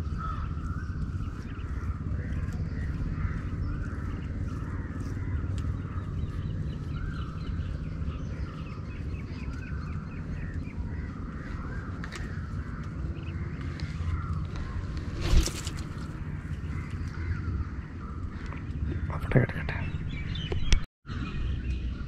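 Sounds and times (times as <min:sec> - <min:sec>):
crows cawing: 0:00.0 - 0:15.8
low rumble: 0:00.0 - 0:22.0.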